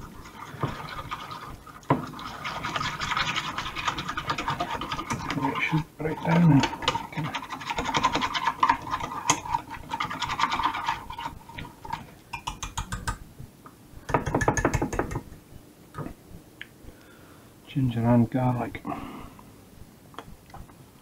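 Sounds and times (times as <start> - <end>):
whisk scraping and clinking bowl: 0.0 - 12.8.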